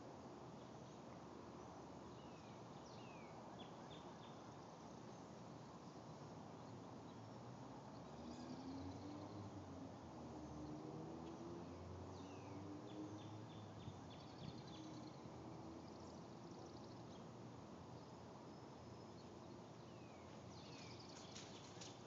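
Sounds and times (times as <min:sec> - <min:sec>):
small birds chirping: 0:10.5 - 0:22.0.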